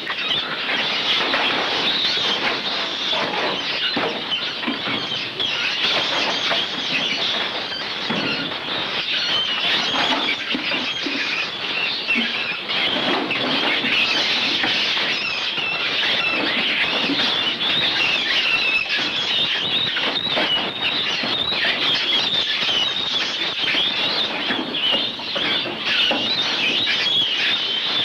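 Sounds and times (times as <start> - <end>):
mink screeching and squealing: 0.0 - 28.0.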